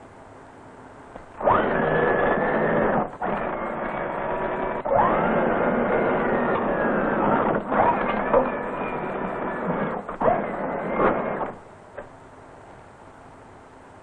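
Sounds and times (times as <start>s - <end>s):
electric motors whining: 1.2s - 12.1s.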